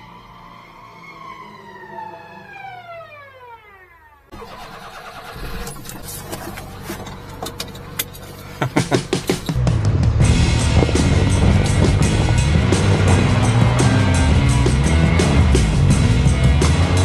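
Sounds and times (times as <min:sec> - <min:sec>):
truck engine running: 0:04.3 - 0:17.0.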